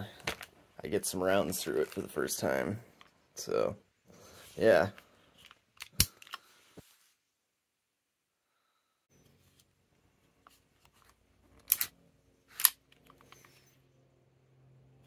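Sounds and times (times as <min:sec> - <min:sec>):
pistol metallic clicks: 0:12.5 - 0:13.4.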